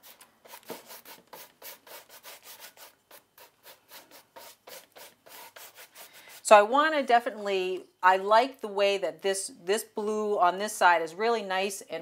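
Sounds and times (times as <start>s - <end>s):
paintbrush scrubbing on canvas: 0.0s - 6.6s.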